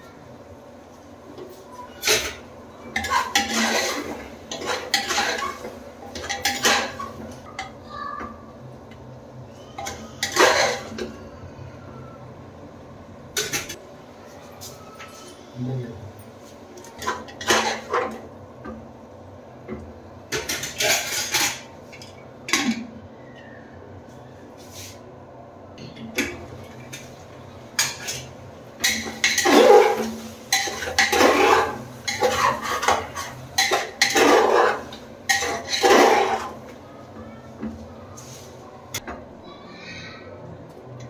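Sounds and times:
metal spoon scraping a pot: 2.0s - 7.2s, 9.8s - 11.0s, 20.4s - 21.7s, 27.8s - 36.6s.

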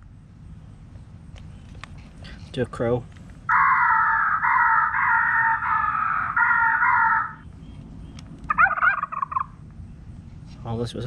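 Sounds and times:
rapidly warbling call: 3.5s - 7.4s, 8.5s - 9.6s
recorded crow caws: 3.5s - 7.5s, 8.5s - 9.6s.

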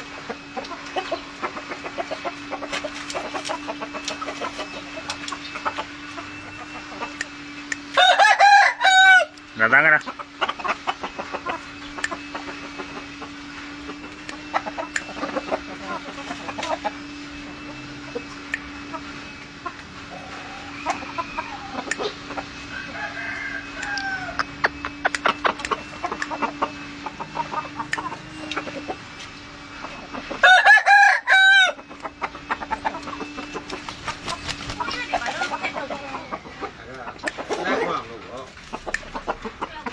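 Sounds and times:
low hum: 0.0s - 37.5s
chickens clucking: 0.0s - 39.9s
rooster crowing: 7.9s - 9.4s, 22.6s - 24.6s, 30.4s - 32.0s.

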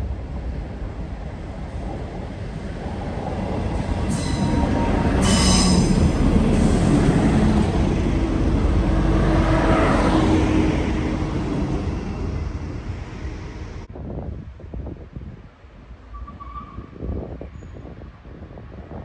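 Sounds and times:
diesel train passing: 0.0s - 14.0s.

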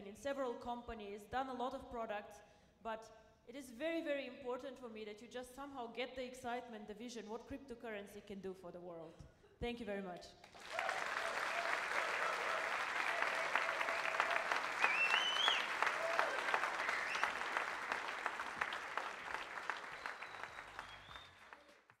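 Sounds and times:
large audience clapping: 10.4s - 22.0s
shrill rising call from crowd: 10.6s - 21.8s.

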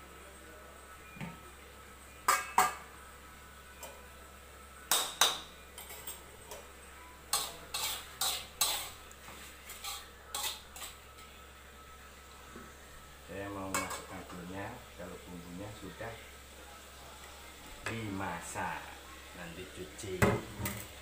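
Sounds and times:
metal cookware clinking: 2.2s - 2.9s, 4.9s - 6.7s, 7.3s - 9.0s, 9.7s - 11.0s, 13.6s - 14.4s.

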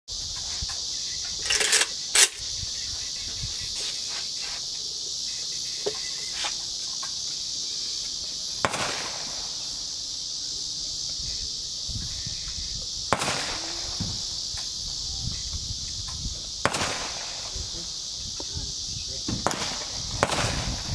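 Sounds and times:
insects buzzing: 0.1s - 20.9s
gunshots with echo: 13.1s - 14.0s.

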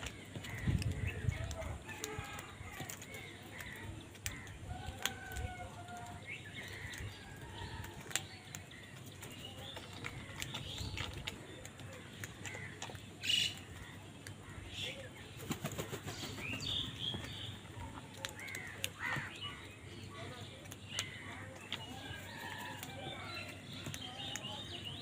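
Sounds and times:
crows calling: 0.0s - 7.8s, 11.9s - 15.0s, 17.1s - 23.6s
beaks pecking at grain: 0.0s - 25.0s.

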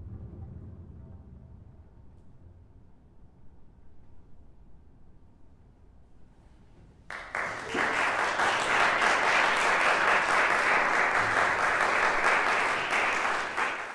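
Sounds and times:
audience applause: 7.1s - 13.9s.

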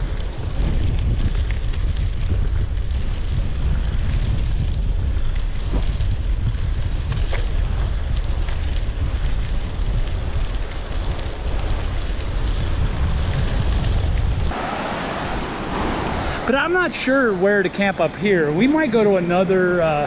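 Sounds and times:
bike tyres crackling on gravel: 0.0s - 20.0s
wind buffeting microphone: 0.0s - 20.0s.

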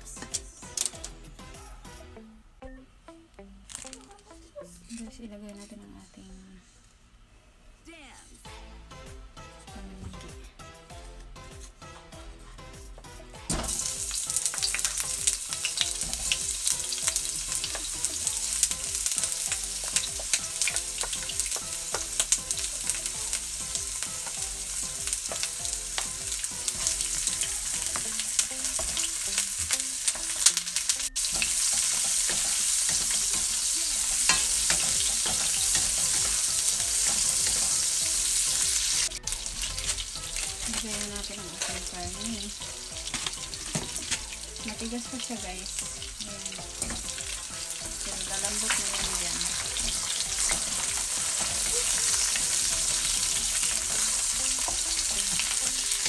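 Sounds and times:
oil sizzling in wok: 13.5s - 56.0s.

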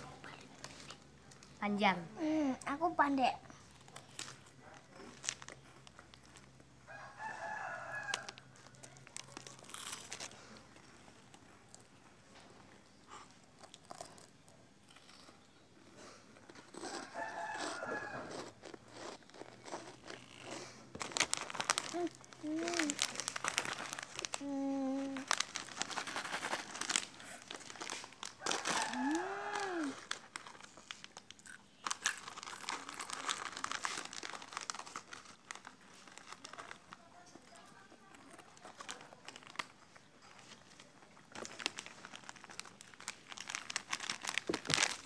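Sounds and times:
plastic wrapper crinkling: 3.6s - 11.9s, 19.2s - 45.0s
crunching snacks: 3.7s - 12.0s, 13.4s - 45.0s
rooster crowing: 6.9s - 8.5s, 16.8s - 18.6s, 28.4s - 30.0s.

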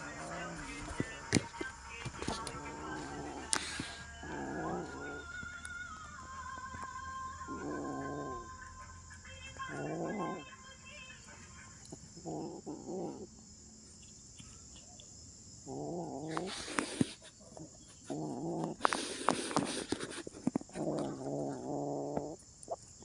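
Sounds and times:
kitten growling: 0.0s - 5.7s, 7.4s - 8.6s, 9.6s - 10.4s, 11.8s - 13.4s, 15.6s - 23.0s.

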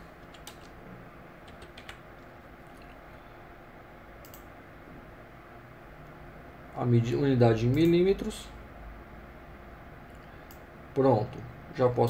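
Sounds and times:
low steady hiss: 0.0s - 12.0s
keyboard keystrokes: 0.2s - 0.8s, 1.4s - 2.0s
clicks: 4.2s - 4.5s.

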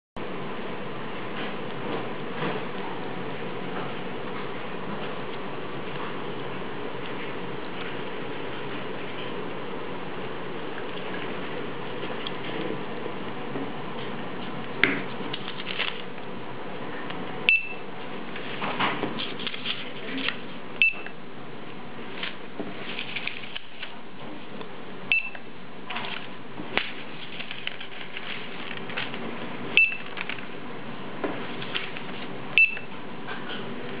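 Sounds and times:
paper labels rustling and clicking: 14.0s - 16.3s, 18.3s - 20.6s, 22.1s - 24.0s, 25.9s - 29.3s, 29.9s - 30.5s, 31.4s - 32.4s
barcode scanner beeps: 17.5s - 17.8s, 20.8s - 21.1s, 25.1s - 25.4s, 29.8s - 30.1s, 32.6s - 32.9s.

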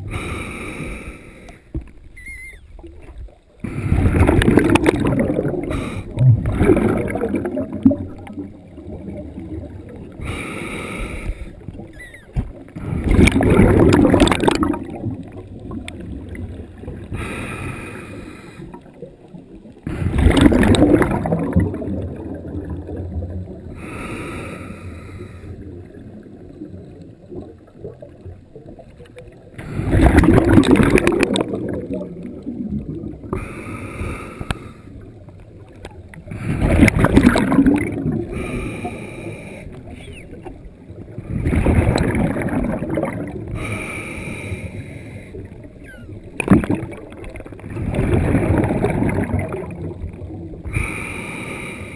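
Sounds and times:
rush of exhaled bubbles: 2.8s - 51.9s
wheezy regulator inhale: 33.3s - 35.0s, 38.3s - 40.2s, 43.5s - 45.5s.

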